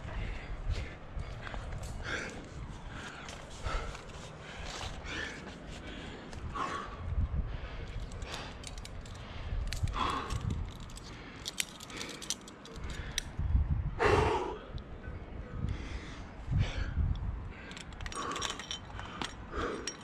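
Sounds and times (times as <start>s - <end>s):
person breathing hard: 0.0s - 20.0s
carabiners clinking: 7.7s - 13.4s, 17.6s - 20.0s.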